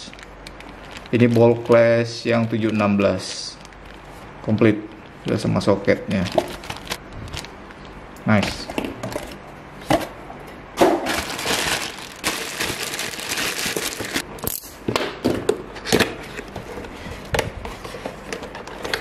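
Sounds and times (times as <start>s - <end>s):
plastic bags crinkling: 0.0s - 4.2s, 6.1s - 7.9s, 11.0s - 14.2s.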